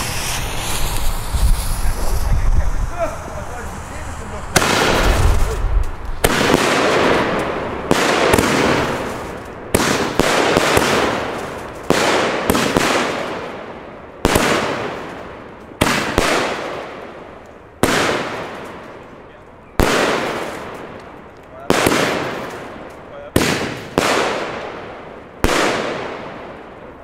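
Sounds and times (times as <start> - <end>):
rush of noise after bang: 0.0 - 6.5
firework bangs: 0.0 - 27.0.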